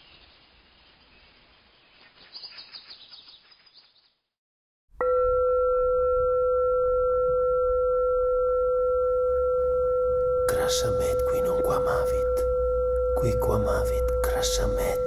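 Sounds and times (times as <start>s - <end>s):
faint chirping: 0.0s - 4.3s
loud ringing drone tone: 5.0s - 15.0s.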